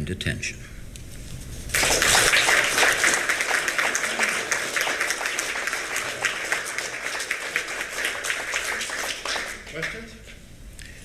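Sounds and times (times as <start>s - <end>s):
audience applauding: 1.7s - 10.2s.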